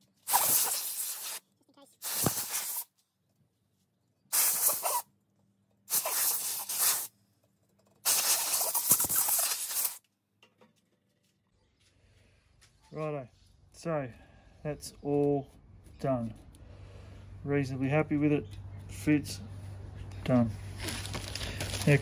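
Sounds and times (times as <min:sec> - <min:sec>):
compressed air blasts: 0:00.2 - 0:01.4, 0:02.0 - 0:02.9, 0:04.3 - 0:05.1, 0:05.9 - 0:07.1, 0:08.0 - 0:10.0.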